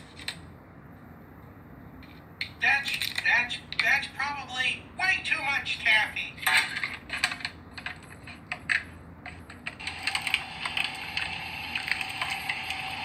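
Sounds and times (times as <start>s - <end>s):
electric meat grinder humming: 9.8s - 13.0s.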